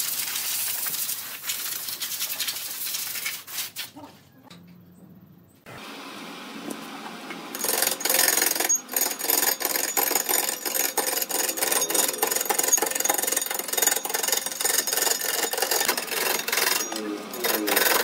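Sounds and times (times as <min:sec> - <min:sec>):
wood lathe starting up: 0:05.7 - 0:18.0
turning tool scraping wood: 0:07.5 - 0:18.0.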